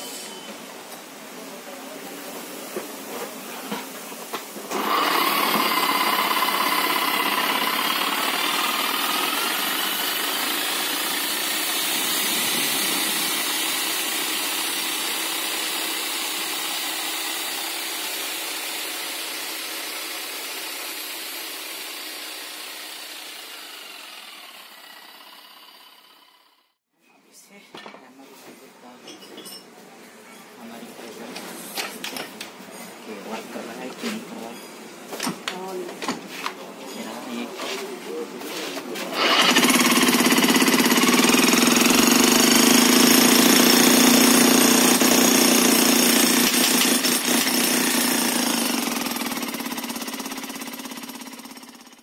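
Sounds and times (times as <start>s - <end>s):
demolition hammer motor whine: 4.7s - 26.6s, 39.2s - 52.0s.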